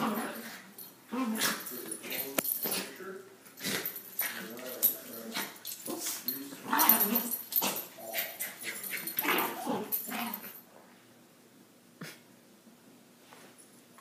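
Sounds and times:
small dogs play-fighting noises: 0.0s - 10.6s.

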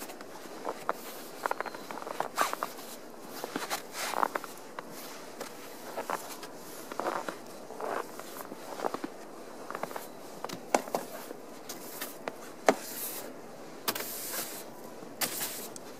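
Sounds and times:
snow brush scraping snow off car: 2.2s - 9.0s, 10.9s - 13.3s, 13.9s - 15.7s.

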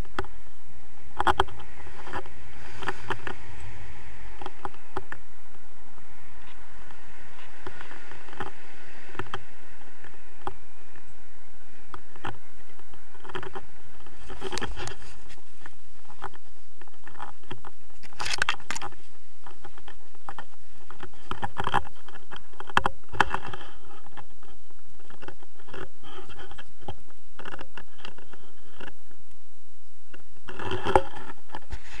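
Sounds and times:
wind on microphone: 0.0s - 32.0s
harness scraping against camera: 12.0s - 29.0s, 30.5s - 32.0s.

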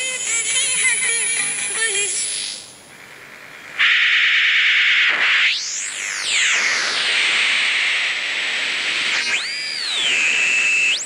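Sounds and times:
radio hiss: 0.0s - 11.0s
radio receiver whistles gliding in pitch: 3.8s - 11.0s.

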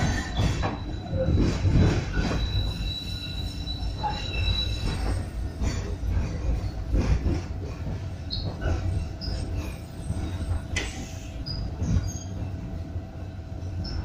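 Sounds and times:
high wheel squeal: 0.0s - 5.4s
tram wheels rumbling: 0.0s - 14.0s.

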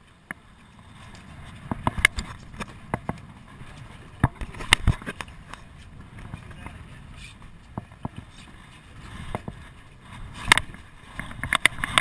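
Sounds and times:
wind and water wash: 0.0s - 12.0s
knocks and thumps on boat deck: 4.2s - 5.2s, 9.2s - 9.7s.

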